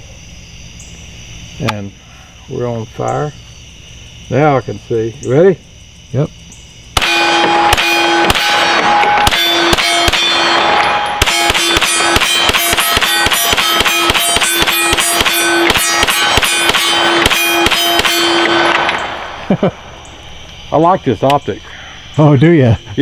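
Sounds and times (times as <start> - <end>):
steel targets clanging: 7.0 - 19.5
gunshots: 7.0 - 19.9.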